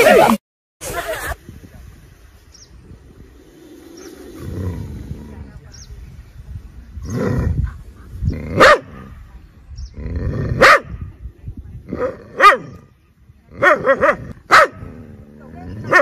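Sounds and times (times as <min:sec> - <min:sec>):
dog barking: 0:08.6 - 0:09.0, 0:10.6 - 0:11.0, 0:12.4 - 0:12.7, 0:13.6 - 0:14.9.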